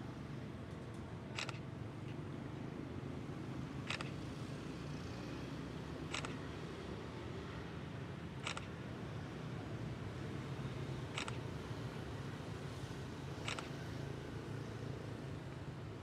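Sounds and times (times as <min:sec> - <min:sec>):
camera shutter clicks: 0:01.3 - 0:01.7, 0:03.9 - 0:04.2, 0:06.1 - 0:06.4, 0:08.4 - 0:08.8, 0:11.1 - 0:11.4, 0:13.4 - 0:13.7.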